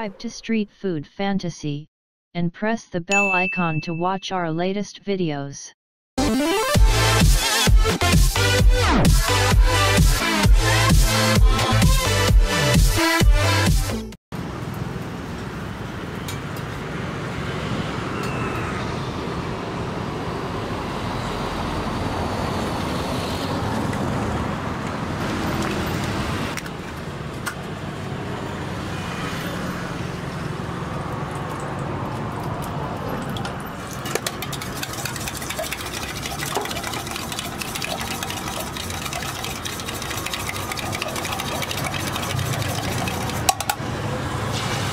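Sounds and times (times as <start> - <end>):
motorbikes and cars passing: 14.4 - 44.9.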